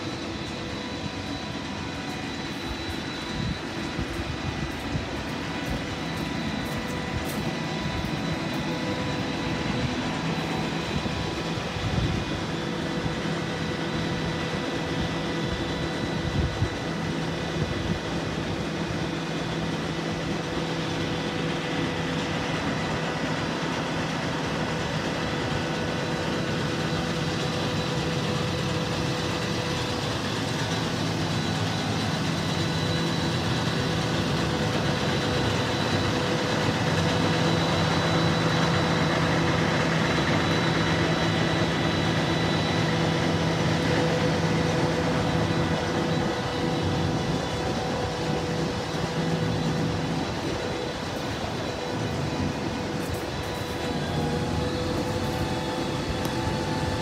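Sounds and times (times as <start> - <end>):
steady engine whine: 0.0 - 57.0
truck diesel engine idling: 27.7 - 57.0.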